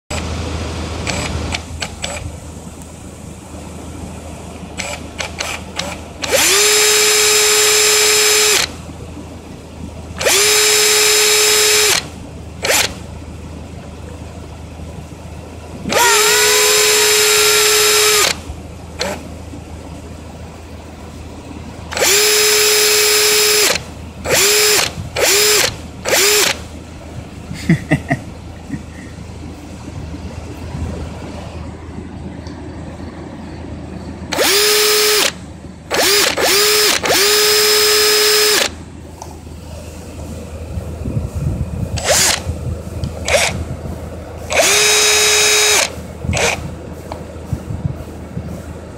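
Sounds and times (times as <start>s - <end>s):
cordless drill motor whining: 1.0s - 2.2s, 4.8s - 8.7s, 10.2s - 13.0s, 15.9s - 18.4s, 19.0s - 19.2s, 21.9s - 26.6s, 34.3s - 38.7s, 42.0s - 42.4s, 43.2s - 43.6s, 44.5s - 46.6s.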